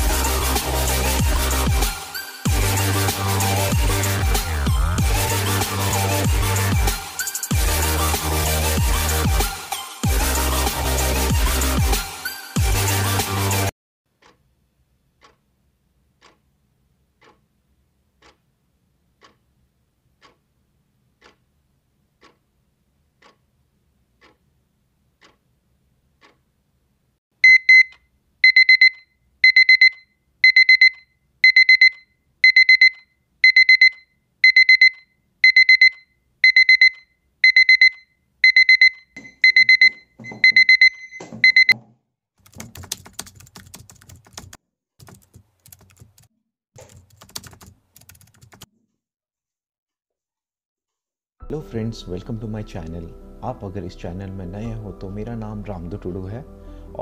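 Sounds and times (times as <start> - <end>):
clock ticking faintly: 14.2 - 15.5, 16.1 - 16.6, 17.2 - 17.5, 18.2 - 25.6, 26.2 - 26.5
alarm clock rapid high beeps: 27.4 - 41.8.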